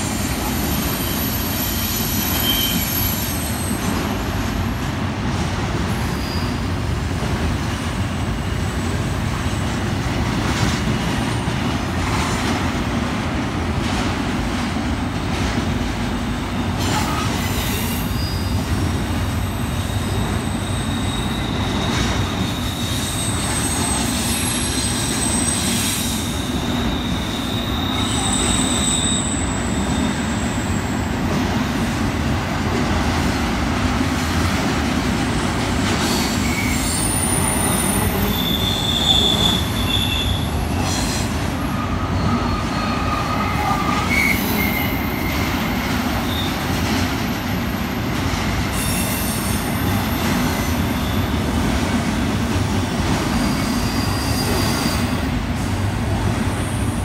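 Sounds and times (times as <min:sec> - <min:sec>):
train wheels rumbling on rail: 0:00.0 - 0:57.0
high-pitched wheel squeals: 0:00.4 - 0:03.8, 0:06.1 - 0:06.7, 0:17.0 - 0:18.6, 0:19.8 - 0:31.0, 0:36.1 - 0:40.9, 0:41.6 - 0:46.6, 0:50.6 - 0:51.4, 0:53.4 - 0:55.2.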